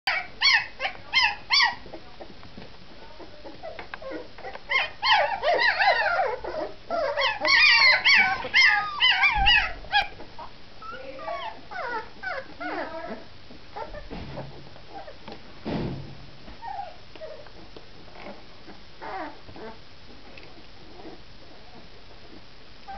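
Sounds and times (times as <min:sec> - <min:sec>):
puppies whimpering and whining: 0:00.1 - 0:02.3, 0:03.2 - 0:15.2, 0:16.6 - 0:19.8.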